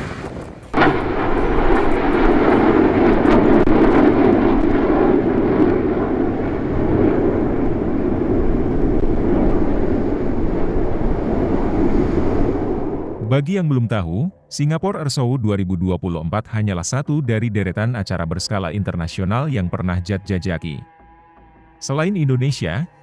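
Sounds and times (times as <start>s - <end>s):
jets flying overhead: 0.0s - 13.2s.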